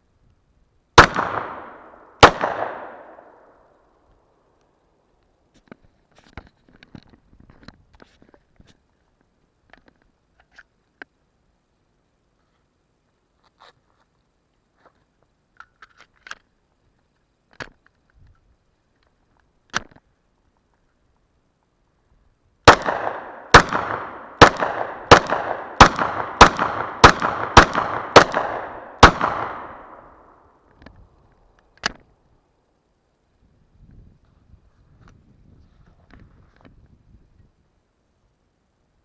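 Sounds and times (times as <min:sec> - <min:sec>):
pistol shots with echo: 0:01.0 - 0:03.6, 0:22.7 - 0:30.4.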